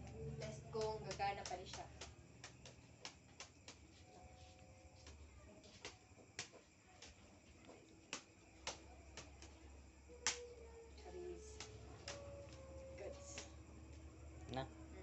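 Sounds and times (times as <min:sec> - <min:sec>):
finger snapping: 0:00.5 - 0:04.2, 0:08.1 - 0:10.7, 0:11.4 - 0:12.6, 0:13.2 - 0:13.6.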